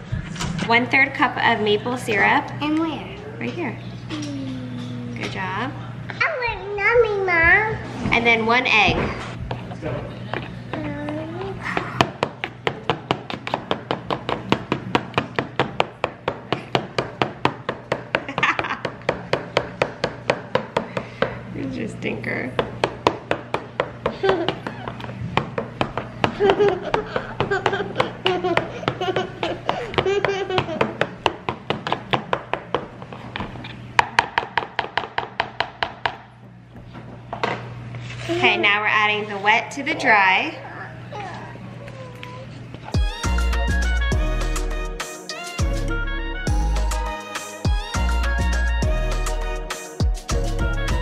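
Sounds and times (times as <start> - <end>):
potato masher knocking in bowl: 11.8 - 21.3.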